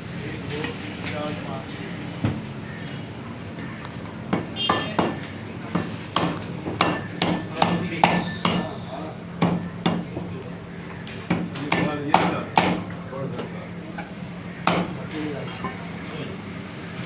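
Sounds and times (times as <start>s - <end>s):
cleaver chopping ribs on wood: 4.3s - 8.7s, 9.4s - 10.2s, 11.2s - 12.9s.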